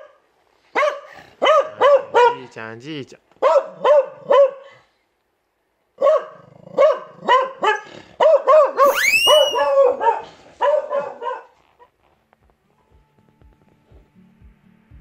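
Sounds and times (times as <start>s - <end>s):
dog barking: 0.0s - 2.5s, 3.4s - 4.8s, 6.0s - 11.6s
dog's high rising cry: 8.4s - 11.5s.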